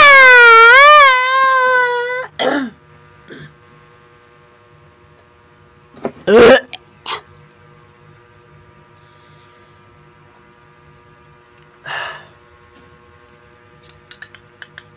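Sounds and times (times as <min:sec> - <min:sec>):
man gagging and retching: 0:06.2 - 0:07.2.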